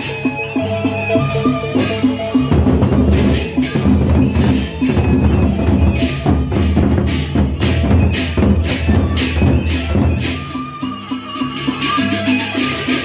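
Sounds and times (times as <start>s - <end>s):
hand cymbals clashing: 0.0s - 13.0s
barrel drums beaten: 1.8s - 10.6s.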